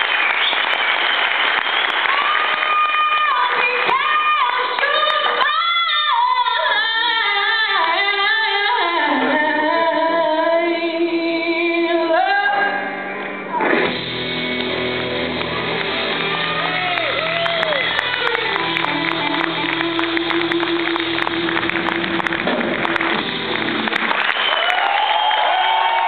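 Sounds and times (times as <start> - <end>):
woman singing blues: 2.7 - 13.0
electric guitar: 12.2 - 24.4
band playing: 12.7 - 24.8.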